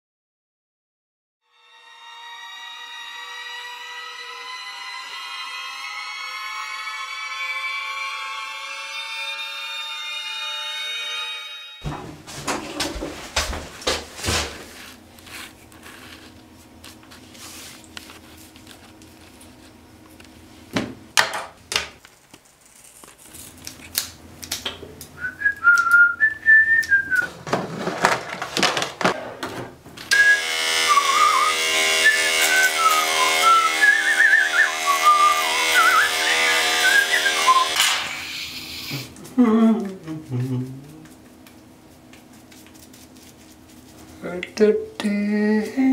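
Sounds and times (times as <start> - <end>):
man whistling: 25.2 - 27.3, 30.1 - 37.8
electric hair clippers buzzing: 30.1 - 39.0.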